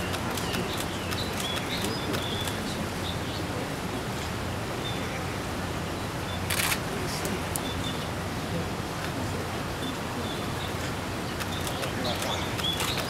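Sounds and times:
small birds chirping: 0.0s - 3.6s, 9.8s - 13.0s
outdoor background hiss: 0.0s - 13.0s.

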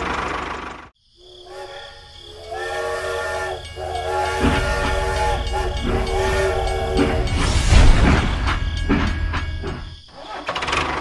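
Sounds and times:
horn-like whistle blasts: 1.5s - 9.9s.

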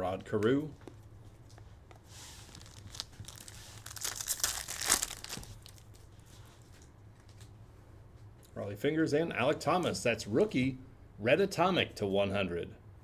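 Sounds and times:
foil wrapper tearing and crinkling: 2.4s - 6.0s.

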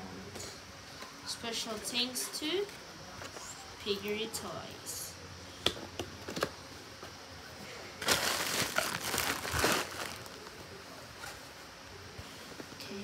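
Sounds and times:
packaging crinkling and rustling: 8.0s - 10.6s.

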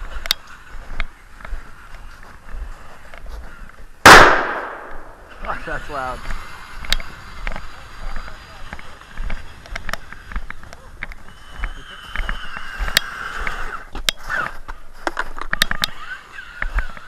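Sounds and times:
footsteps crunching in snow: 0.0s - 4.0s.

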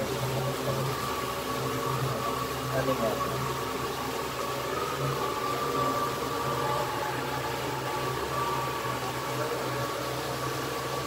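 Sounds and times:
boat engine humming: 0.0s - 11.0s
water wash: 0.0s - 11.0s.

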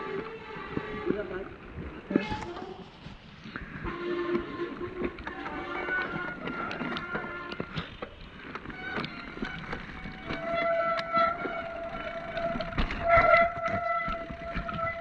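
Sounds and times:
high whine from bike: 1.9s - 15.0s
bike knocks and rattles: 6.0s - 15.0s.

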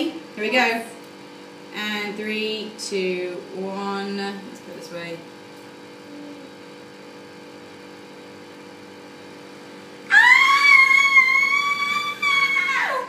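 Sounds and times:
low room hum: 0.0s - 13.0s
person squealing with delight: 10.1s - 13.0s.

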